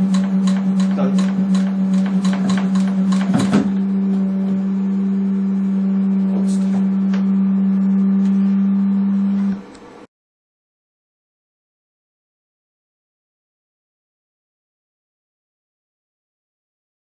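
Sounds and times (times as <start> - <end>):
low electrical motor hum: 0.0 - 10.1.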